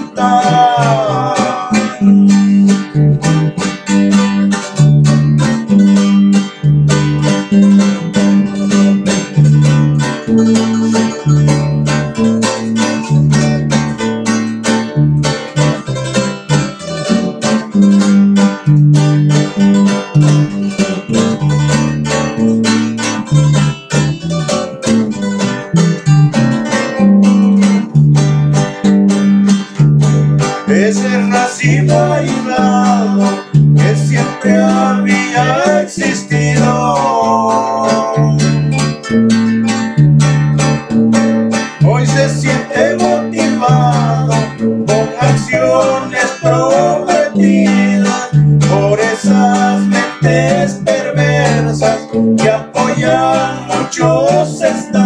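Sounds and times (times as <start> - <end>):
acoustic guitars strummed and plucked: 0.0 - 55.0
bass line: 0.0 - 55.0.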